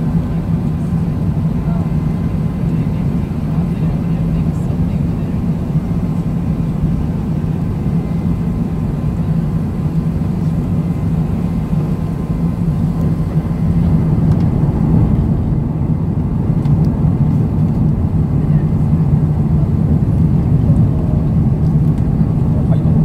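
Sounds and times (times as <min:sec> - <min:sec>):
low rumble of jet engines: 0:00.0 - 0:23.0
rushing airflow: 0:12.0 - 0:23.0.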